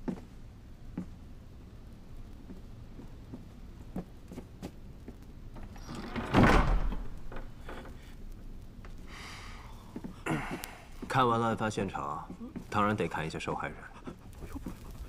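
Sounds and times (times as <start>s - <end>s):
door creak: 5.6s - 8.2s
heavy door sliding rumble: 5.6s - 8.2s.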